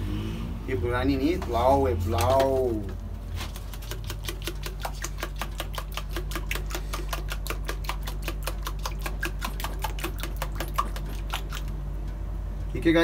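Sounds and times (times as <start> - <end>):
fork whisking in plastic bowl: 3.4 - 11.8.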